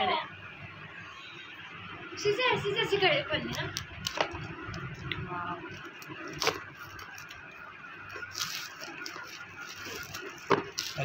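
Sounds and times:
plastic wrap crinkling: 3.4s - 11.0s
plastic rustle: 5.7s - 11.0s.

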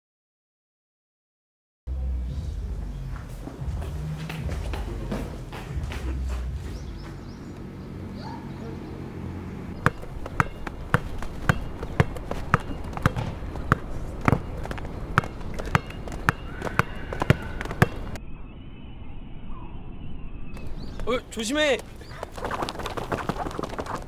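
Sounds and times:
basketball bouncing on hard court: 9.8s - 18.2s.

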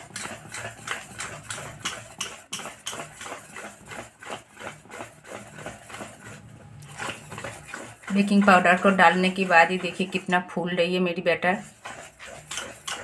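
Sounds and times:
whisk clinking in metal bowl: 0.0s - 13.0s.

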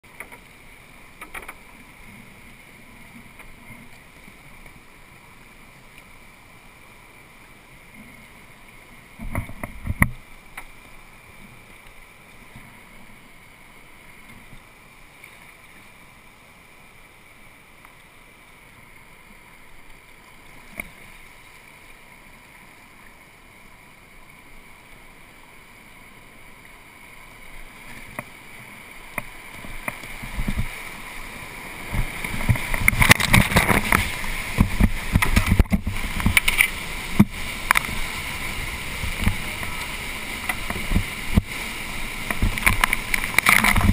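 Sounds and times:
water rushing around kayak: 0.0s - 43.9s
river rapid rushing: 10.0s - 43.9s.

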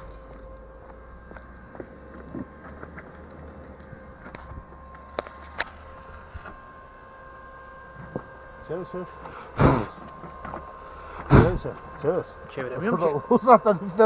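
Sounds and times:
arc welding hiss and crackle: 0.0s - 6.6s
faint steady hum: 0.0s - 14.0s.

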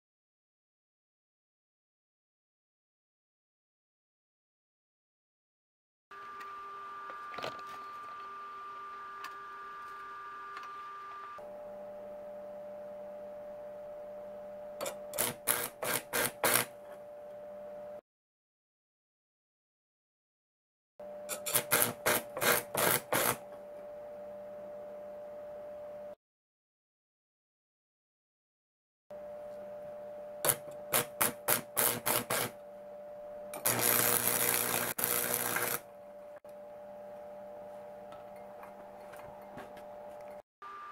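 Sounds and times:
faint steady hum: 6.2s - 15.6s, 16.8s - 18.0s, 23.4s - 26.2s, 32.6s - 40.9s
electrode scratching steel plate: 14.8s - 17.0s, 21.3s - 23.5s, 30.4s - 32.6s, 33.6s - 35.9s
crackling arc bursts: 30.4s - 32.6s, 33.6s - 35.9s.

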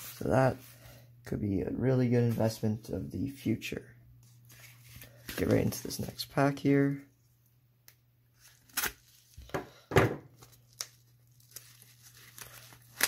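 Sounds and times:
paper envelope rustling and ripping: 4.2s - 6.2s, 8.4s - 9.5s, 10.3s - 13.0s.

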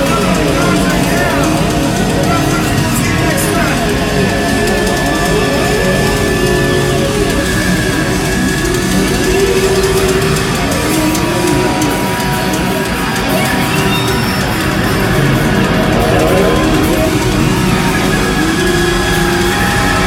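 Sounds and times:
electric guitars bending notes: 0.0s - 20.0s
live heavy rock band: 0.0s - 20.0s.

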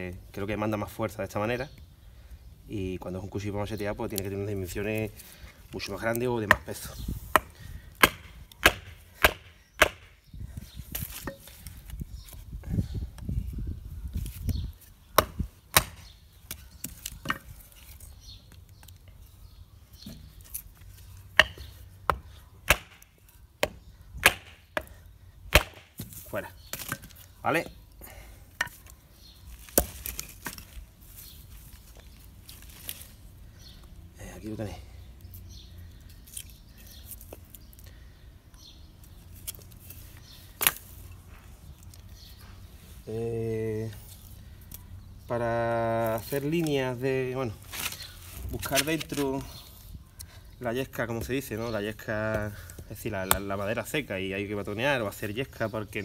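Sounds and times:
knife chopping wood: 6.4s - 10.2s, 15.1s - 17.5s, 21.3s - 27.2s, 29.6s - 30.6s.

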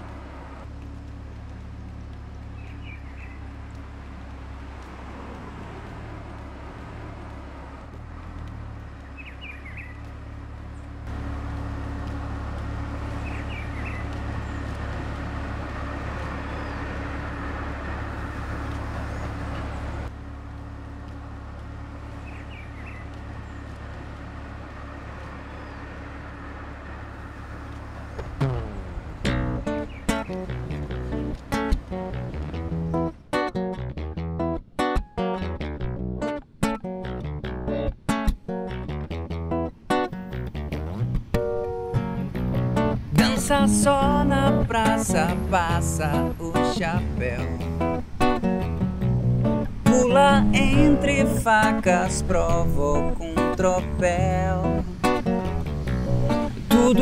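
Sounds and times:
traffic rumble: 0.0s - 57.0s
bird chirping: 2.4s - 3.6s, 8.9s - 10.1s, 13.1s - 15.0s, 16.2s - 17.2s, 22.1s - 24.0s, 25.1s - 26.2s, 28.2s - 33.1s.

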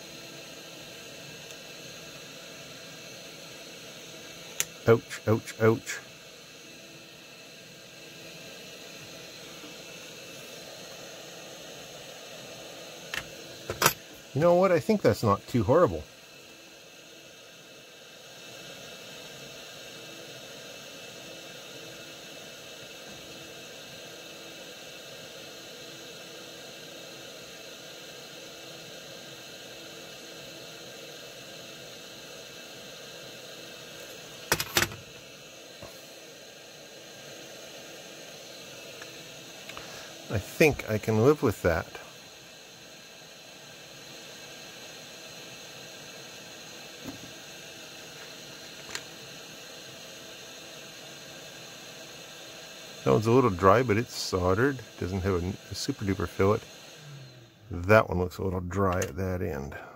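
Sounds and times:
steady background hiss: 0.0s - 59.9s
faint steady tones: 50.5s - 59.9s.

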